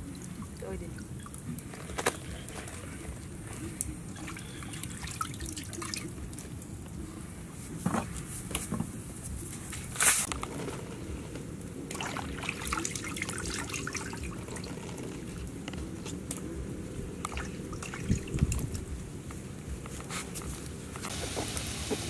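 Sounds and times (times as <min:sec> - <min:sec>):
water splashing in a wok: 0:11.9 - 0:14.7, 0:21.1 - 0:22.0.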